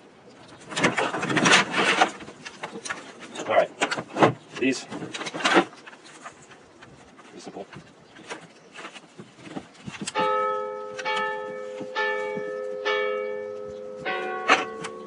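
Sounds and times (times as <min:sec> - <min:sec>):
rucksack webbing clicking and rustling: 0:00.4 - 0:12.7, 0:13.6 - 0:15.0
bells ringing: 0:10.2 - 0:15.0.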